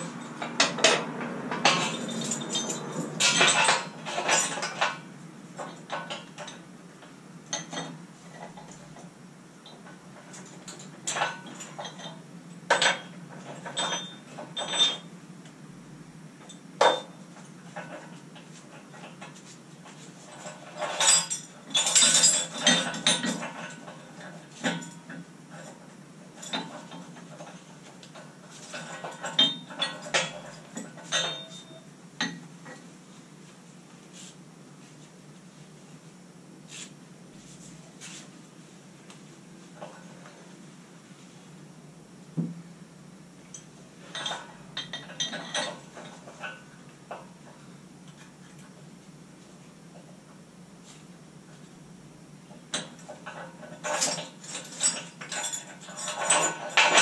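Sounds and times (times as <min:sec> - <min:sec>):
metal clinks and clanks: 0:00.0 - 0:06.6, 0:09.7 - 0:15.1, 0:20.2 - 0:25.8, 0:26.4 - 0:32.8, 0:43.5 - 0:46.6, 0:52.7 - 0:57.0.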